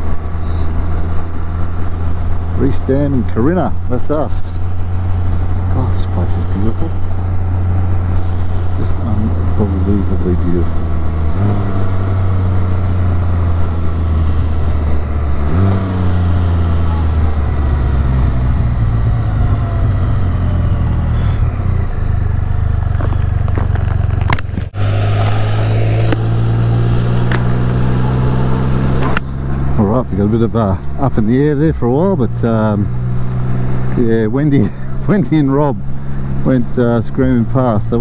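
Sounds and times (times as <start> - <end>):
wind and road noise: 0.0 - 38.0
motorcycle engine downshifting: 4.6 - 32.0.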